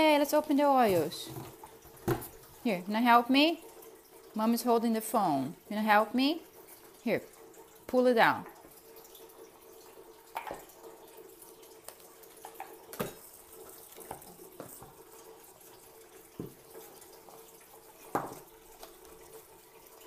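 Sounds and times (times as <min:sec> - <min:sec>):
cardboard and bottles tapping: 0:00.8 - 0:02.4.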